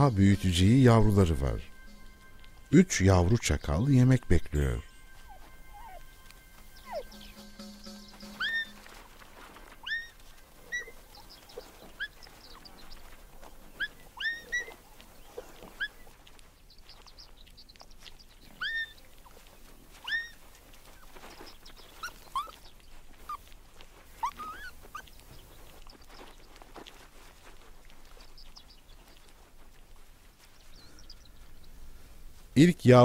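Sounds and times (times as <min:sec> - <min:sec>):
jackal pups whimpering: 0:04.9 - 0:17.1, 0:17.8 - 0:31.2.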